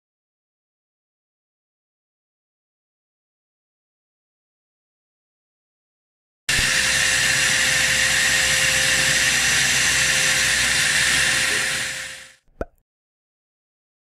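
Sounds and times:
vacuum cleaner running: 0:06.5 - 0:12.4.

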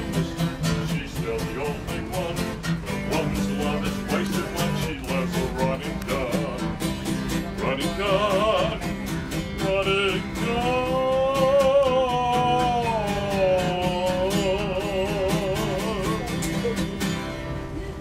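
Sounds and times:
man singing country song: 0:00.0 - 0:17.1
acoustic guitar strumming: 0:00.0 - 0:18.0.

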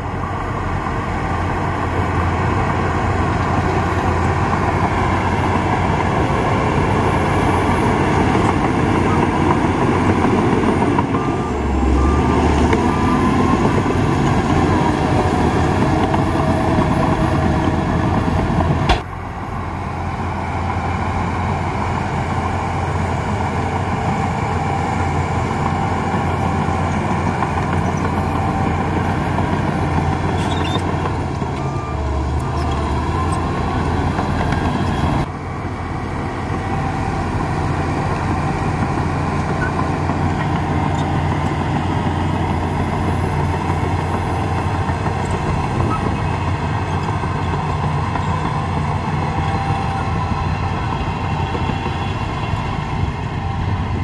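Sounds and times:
heavy machinery engine drone: 0:00.0 - 0:54.0.

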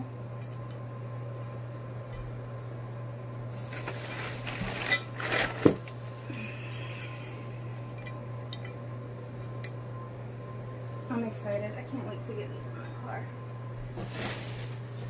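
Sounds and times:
bubble wrap and paper crinkling: 0:03.6 - 0:06.2, 0:13.9 - 0:15.0
low hum: 0:06.0 - 0:14.7.

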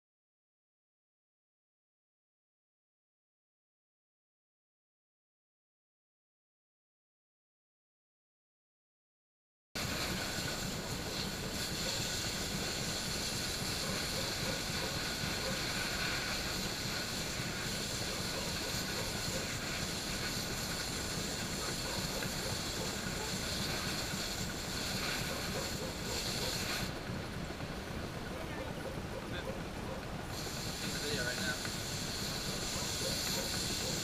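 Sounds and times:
fan machine whooshing: 0:09.8 - 0:34.0
hose spraying water: 0:09.8 - 0:34.0.

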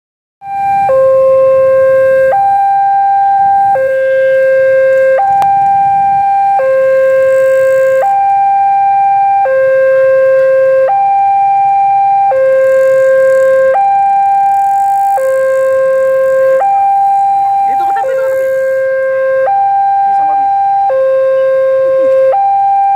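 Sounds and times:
two-tone warning siren: 0:00.4 - 0:22.9.

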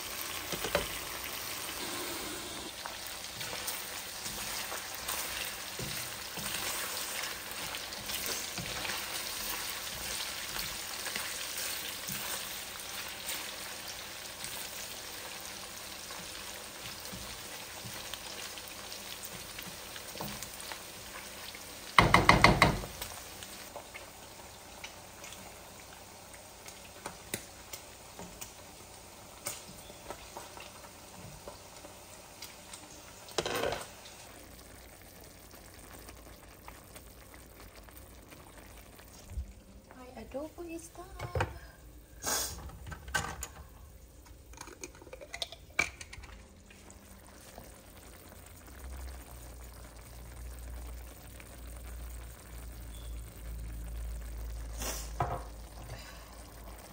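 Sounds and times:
meat sizzling in a wok: 0:00.0 - 0:40.8, 0:41.8 - 0:42.6, 0:46.7 - 0:56.9
wooden spatula stirring: 0:02.8 - 0:13.5.

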